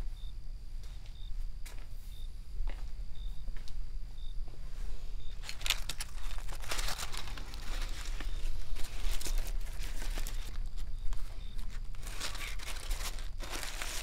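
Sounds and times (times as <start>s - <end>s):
steady low hum: 0.0s - 14.0s
foil and paper crinkling: 5.4s - 14.0s.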